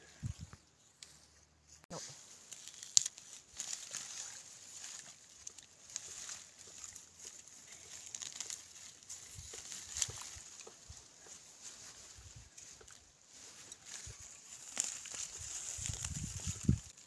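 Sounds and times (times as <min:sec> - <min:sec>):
leaves rustling and crackling: 0:00.0 - 0:17.0
plant stem snapping: 0:02.5 - 0:04.1.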